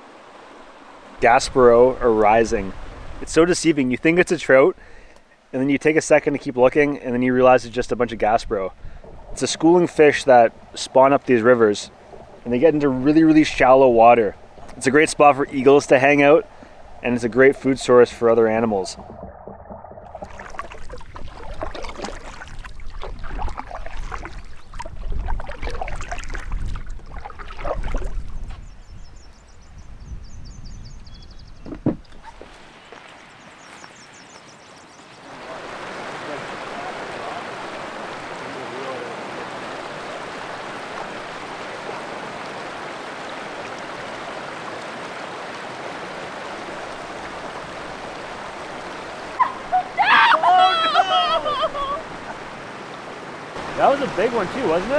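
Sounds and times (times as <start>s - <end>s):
paddle splashing water: 0.0s - 5.2s, 6.3s - 28.7s, 31.8s - 54.9s
water lapping at hull: 6.3s - 29.0s, 35.2s - 54.9s
person crying out loudly: 49.4s - 52.1s.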